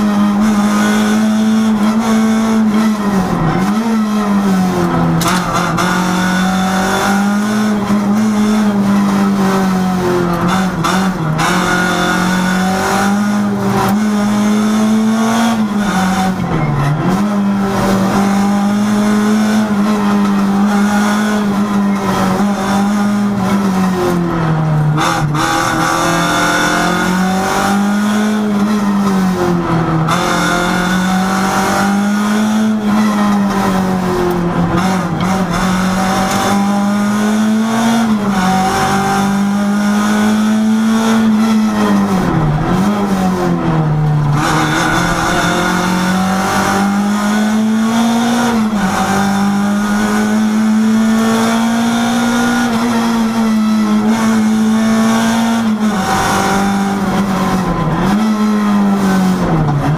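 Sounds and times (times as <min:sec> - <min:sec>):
rally car engine running hard: 0:00.0 - 0:59.9.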